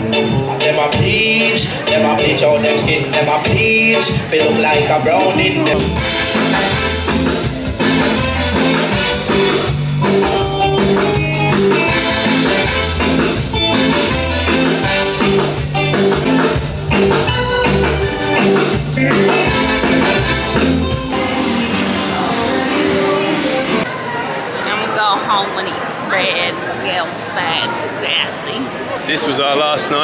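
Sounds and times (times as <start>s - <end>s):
deep bass line: 0.0s - 22.8s
reggae band playing: 0.0s - 23.9s.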